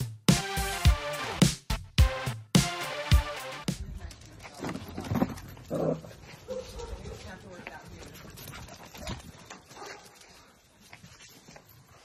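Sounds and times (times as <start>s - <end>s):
dogs scuffling: 3.9s - 12.0s.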